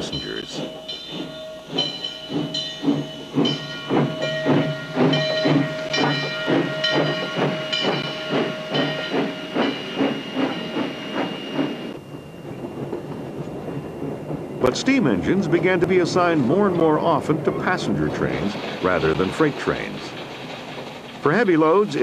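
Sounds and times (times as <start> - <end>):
steam hissing: 0.0 - 12.0
steam locomotive chuffing: 0.0 - 22.0.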